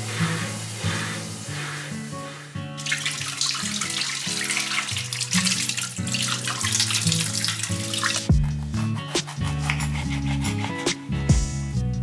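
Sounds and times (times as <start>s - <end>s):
faucet water splashing: 0.0s - 8.3s.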